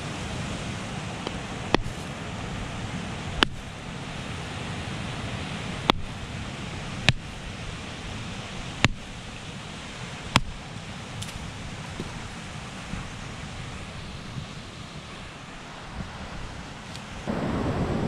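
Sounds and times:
surf washing: 0.0 - 18.0
machete knocking on coconut shell: 3.4 - 3.6, 5.9 - 6.1.

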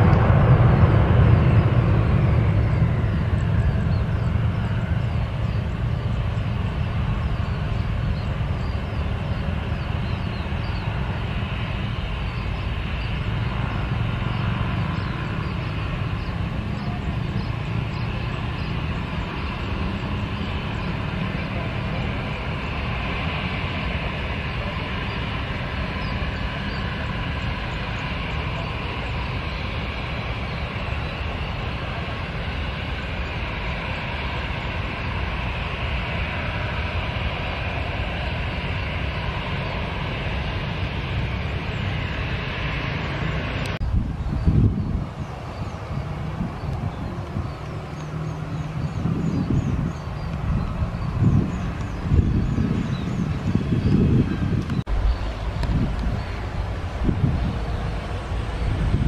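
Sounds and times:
jet engines rumbling: 0.0 - 59.0
passing road traffic: 0.0 - 59.0.

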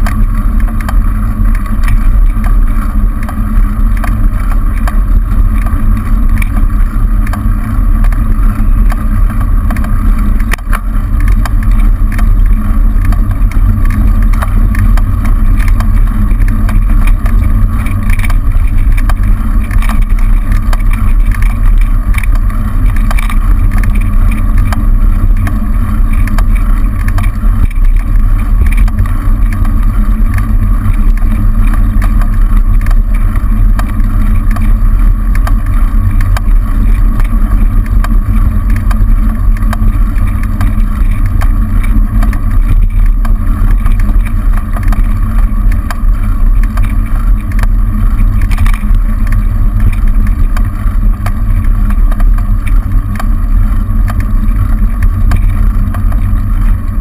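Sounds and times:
wind and road rumble while cycling: 0.0 - 57.0.

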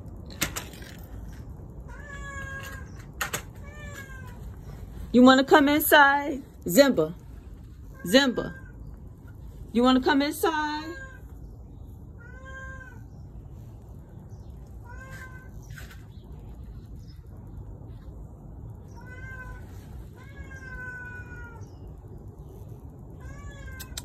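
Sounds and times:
low background rumble: 0.0 - 24.0
cat meowing: 1.9 - 4.5, 12.2 - 13.2, 14.8 - 15.7, 18.8 - 21.8, 23.2 - 24.0.

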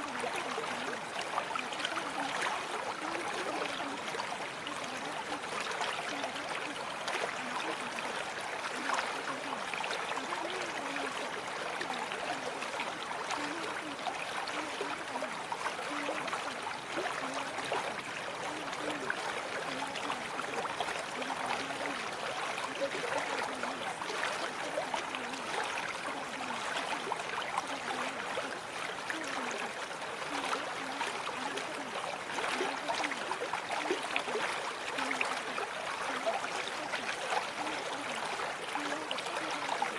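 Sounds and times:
running water trickling: 0.0 - 39.9.

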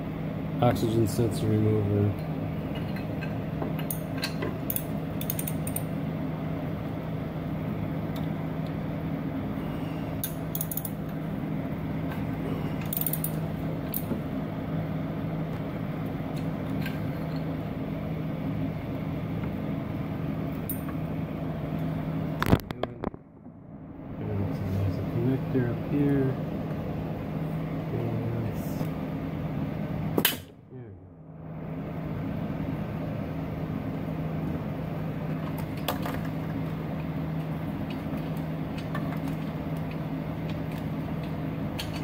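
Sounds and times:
steady low hum: 0.0 - 42.0
hand ratchet clicking: 4.7 - 5.8, 10.2 - 11.0, 12.9 - 14.0.

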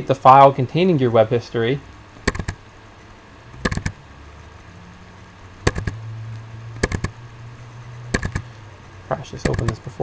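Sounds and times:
faint low hum: 0.0 - 10.0
computer mouse double-clicking: 2.2 - 2.6, 3.6 - 4.0, 5.6 - 6.0, 6.8 - 7.2, 8.1 - 8.5, 9.4 - 9.8.

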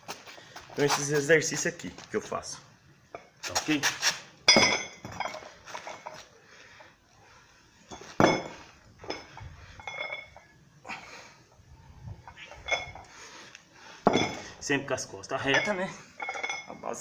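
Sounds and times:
barbell plates clinking: 7.9 - 10.5, 12.2 - 13.1, 15.4 - 16.9.

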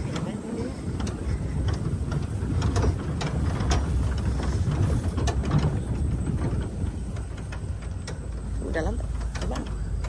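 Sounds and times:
engine and tyre rumble: 0.0 - 10.0
truck rattling over ruts: 0.0 - 10.0.

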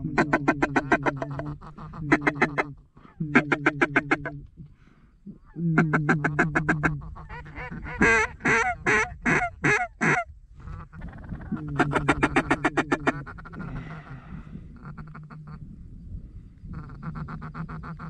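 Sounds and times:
duck call quacks: 0.0 - 2.7, 3.3 - 4.4, 5.8 - 14.1.

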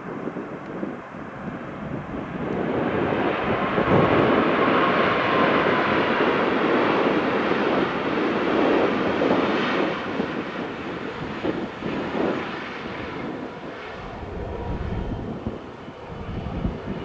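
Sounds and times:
airliner engine noise: 0.0 - 17.0
faint whine: 13.0 - 17.0.

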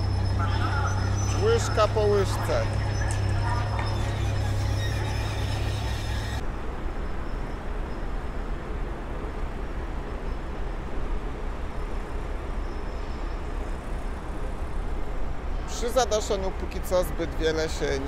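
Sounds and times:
diesel machinery droning: 0.0 - 6.8
construction and traffic rumble: 0.0 - 18.0.

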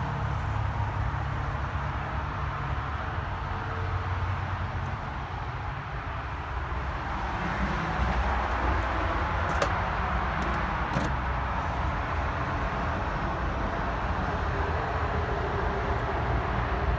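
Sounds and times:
outdoor rumble and hiss: 0.0 - 16.9.

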